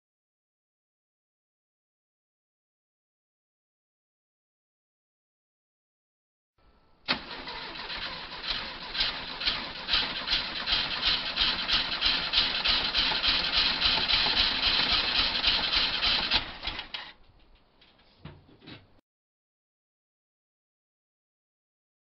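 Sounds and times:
engine cranking on starter: 7.1 - 17.2.

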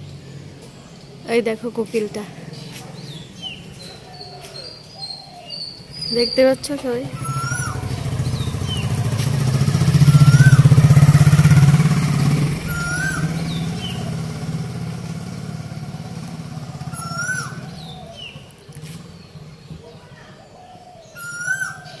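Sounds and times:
vehicle engine passing: 0.0 - 20.7
higher bird chirps: 1.9 - 22.0
koel calling: 2.1 - 9.0, 9.9 - 11.4, 12.6 - 14.3, 16.6 - 18.4.

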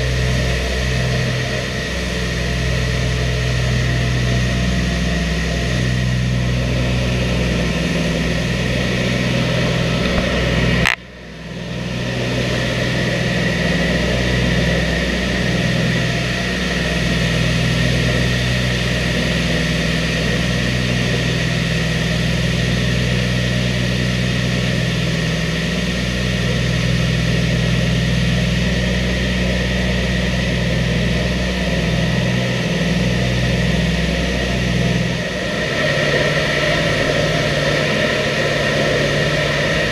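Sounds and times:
aircraft engines droning: 0.0 - 39.9
sharp click: 10.0 - 11.1.

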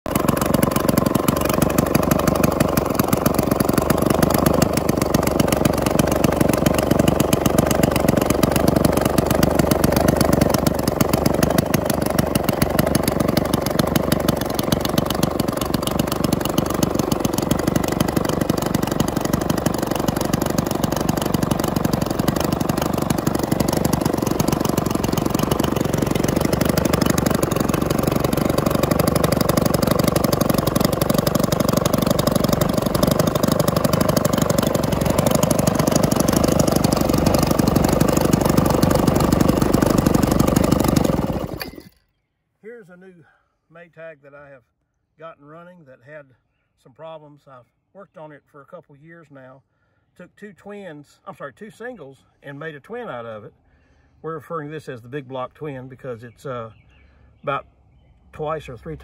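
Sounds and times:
two-stroke engine running: 0.0 - 42.0.

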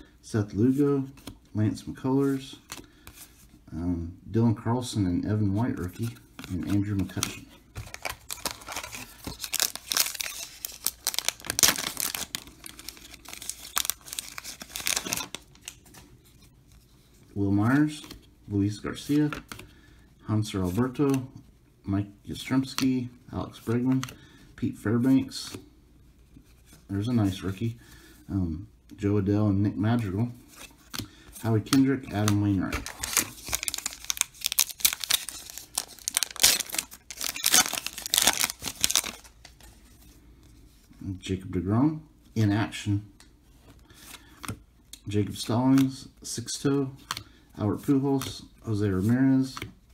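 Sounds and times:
foil wrapper tearing and crinkling: 7.9 - 15.8, 32.8 - 39.3.

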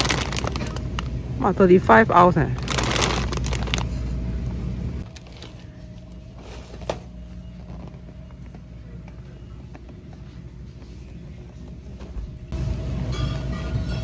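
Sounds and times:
steady hum with faint tone: 0.0 - 14.0.

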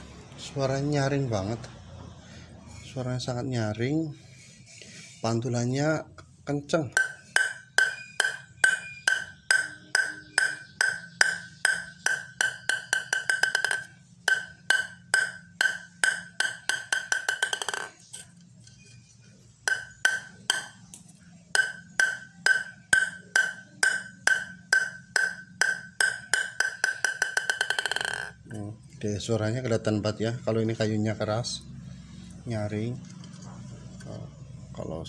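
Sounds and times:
ping-pong ball bouncing on blade: 6.9 - 18.0, 19.7 - 21.0, 21.6 - 28.4.

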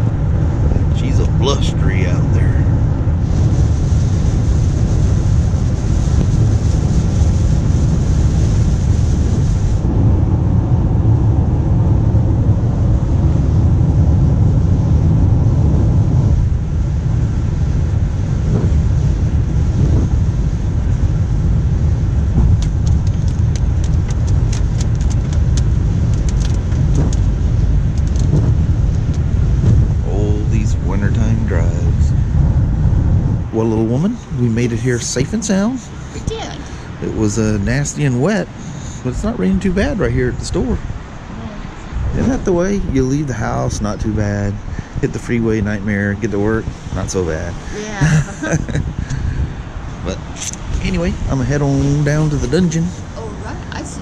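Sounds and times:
tyre and engine rumble: 0.0 - 54.0
wind and spray wash: 0.0 - 54.0.

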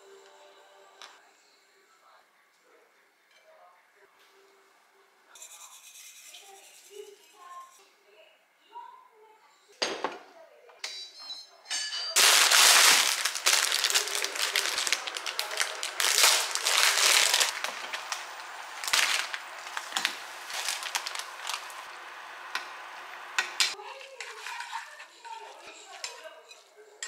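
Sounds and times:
dry noodle block cracking: 12.2 - 21.8
plastic packet crinkling: 12.2 - 22.3.

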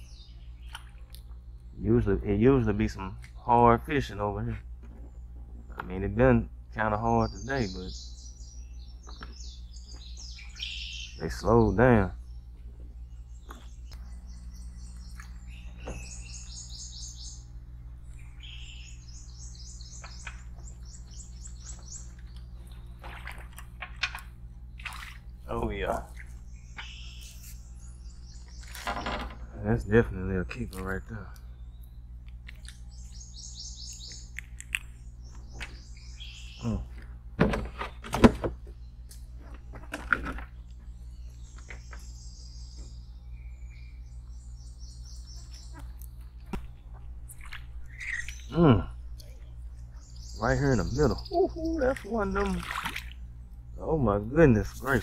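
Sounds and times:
steady low hum: 0.0 - 55.0
songbird singing high notes: 7.0 - 12.4, 18.2 - 22.1, 25.5 - 28.7, 35.2 - 36.9.

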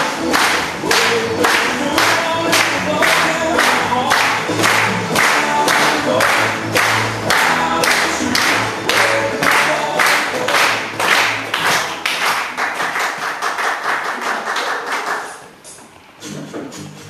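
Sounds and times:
dance music: 0.0 - 12.6
hand clapping: 0.0 - 15.6.

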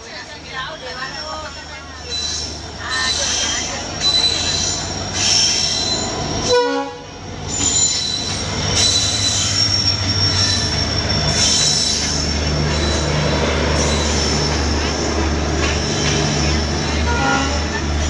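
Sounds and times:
diesel locomotive engine rumble: 0.0 - 18.0
high-pitched wheel and brake squeal: 0.8 - 6.7, 7.5 - 14.6.

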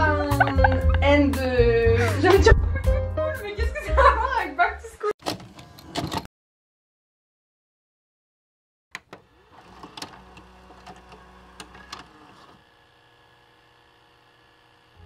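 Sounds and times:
tape-loading motor whirring: 9.0 - 15.0.

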